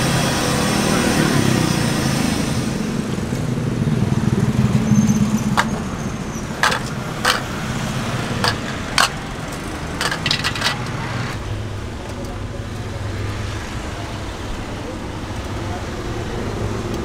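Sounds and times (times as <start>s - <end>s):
metal lids clinking: 6.5s - 7.8s, 8.4s - 11.0s.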